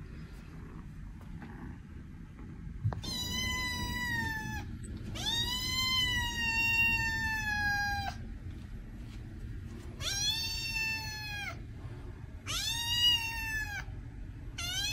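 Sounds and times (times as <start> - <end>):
kitten meowing: 3.0 - 8.2, 10.0 - 11.6, 12.5 - 13.9, 14.6 - 14.9.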